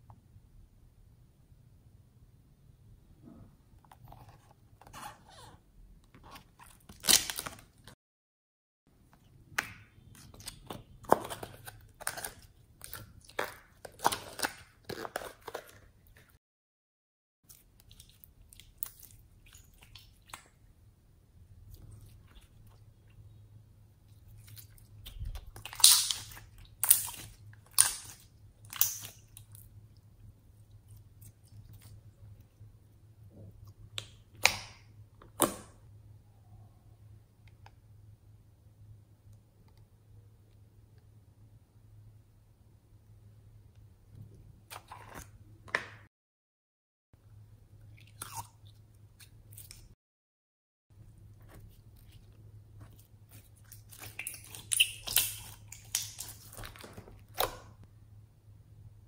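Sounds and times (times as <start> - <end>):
slime squished by hand: 51.4 - 57.8.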